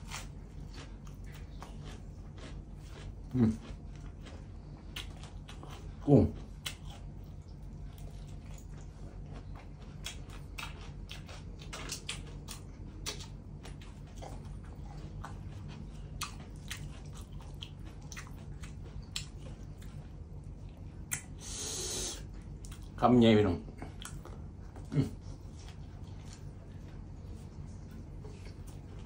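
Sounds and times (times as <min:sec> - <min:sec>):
person chewing food: 0:00.0 - 0:23.0, 0:23.6 - 0:29.0
wet mouth clicks and smacks: 0:21.1 - 0:21.3.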